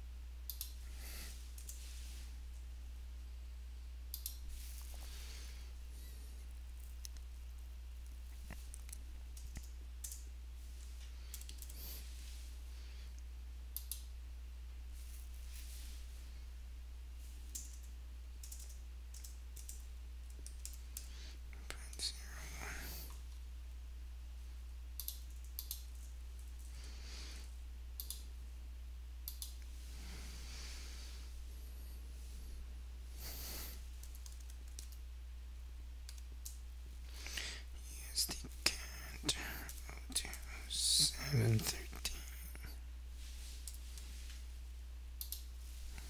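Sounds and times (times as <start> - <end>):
steady low hum: 0.0 - 46.0
computer keyboard typing: 8.6 - 10.2, 11.3 - 11.8, 17.5 - 21.1, 25.0 - 26.6, 34.0 - 35.0.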